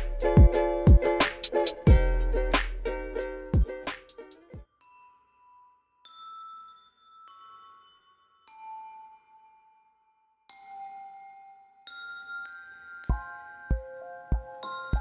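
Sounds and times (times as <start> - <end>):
slow bell-like notes: 4.7 - 15.0.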